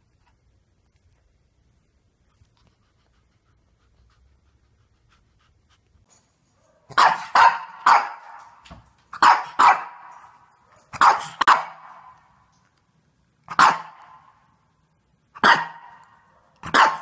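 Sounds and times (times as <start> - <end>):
dog barking: 6.7 - 8.6, 9.2 - 12.1, 13.5 - 14.3, 15.4 - 17.0.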